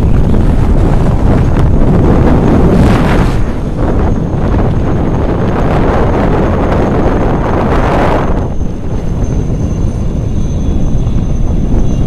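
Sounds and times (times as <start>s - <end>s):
strong wind buffeting microphone: 0.0s - 12.0s.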